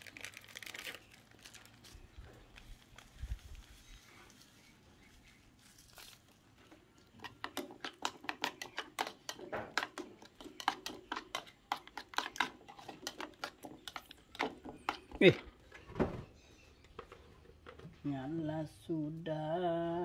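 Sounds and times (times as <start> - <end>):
spoon beating mixture in bowl: 7.1 - 15.5.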